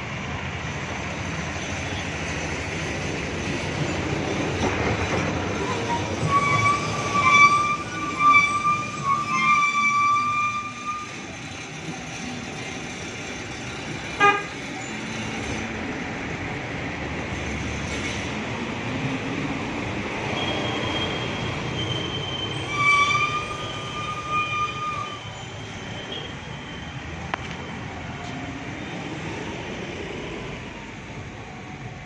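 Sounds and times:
traffic rumble: 0.0 - 32.0
car horn: 14.2 - 14.5.

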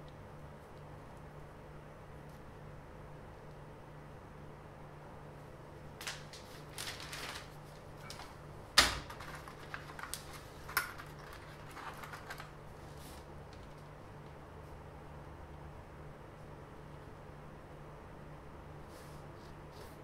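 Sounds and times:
paper rustling: 6.0 - 13.9.

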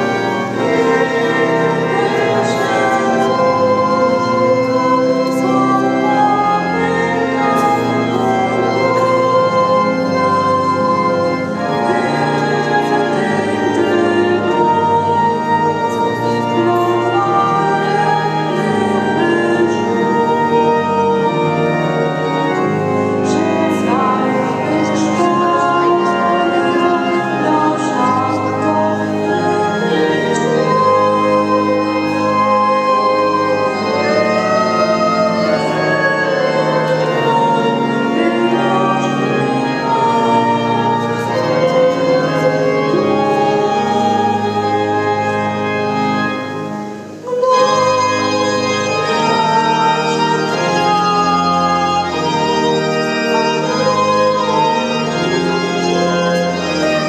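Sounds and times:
pipe organ sustained chords: 0.0 - 57.0.

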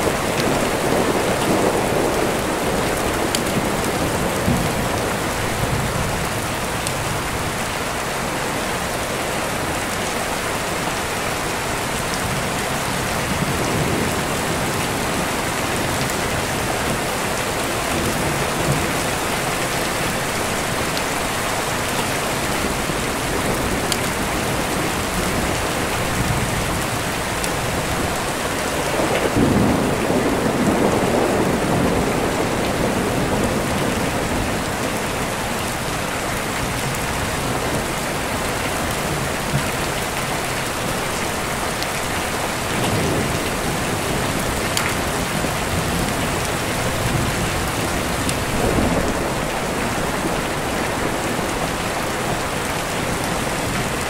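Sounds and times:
steady rain: 0.0 - 54.0
deep rolling thunder: 22.7 - 34.7.

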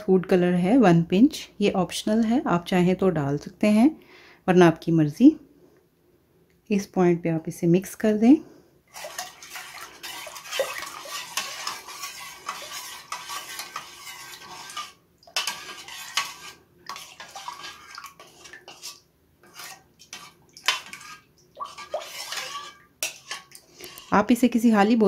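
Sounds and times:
spoon scraping metal saucepan: 8.9 - 24.6.

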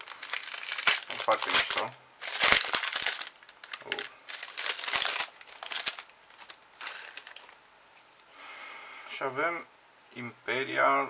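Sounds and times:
foil wrapper crinkling: 0.0 - 7.6.

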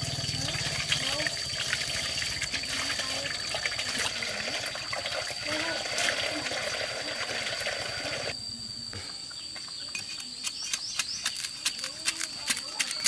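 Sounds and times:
high insect drone: 0.0 - 13.0.

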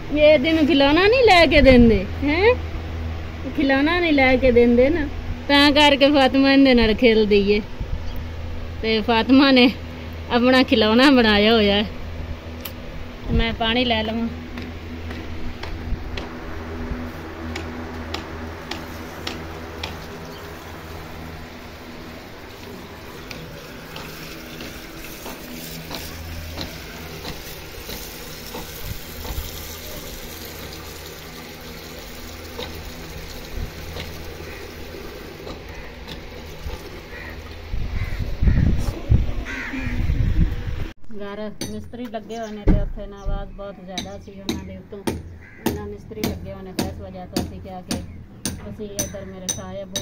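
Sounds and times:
steady low hum: 0.0 - 50.0
tap water filling metal pot: 21.5 - 37.6.

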